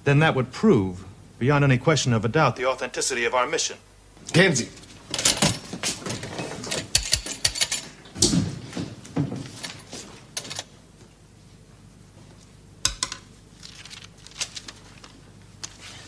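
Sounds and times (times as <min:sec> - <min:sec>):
man speaking: 0:00.0 - 0:04.8.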